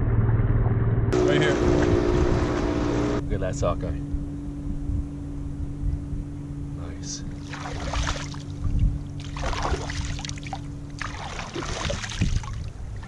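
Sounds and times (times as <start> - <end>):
low wind rumble: 0.0 - 13.0
steady low hum: 0.0 - 13.0
river water splashing: 7.3 - 13.0.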